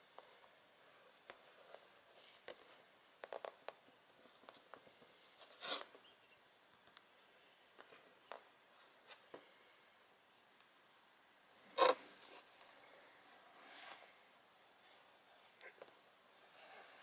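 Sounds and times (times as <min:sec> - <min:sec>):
scraping rustle: 0:12.1 - 0:14.2.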